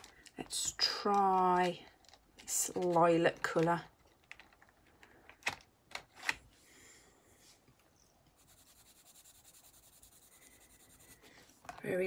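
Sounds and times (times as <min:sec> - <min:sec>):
pencil shading on paper: 0:08.4 - 0:11.3.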